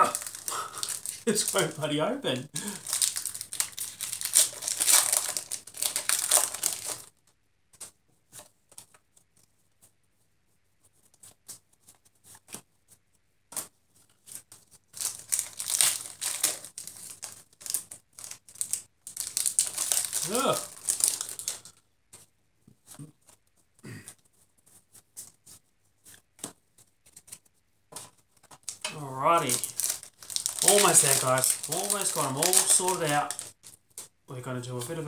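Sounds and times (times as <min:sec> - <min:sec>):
foil wrapper crinkling: 0:00.0 - 0:07.2, 0:14.4 - 0:21.8, 0:28.0 - 0:35.0.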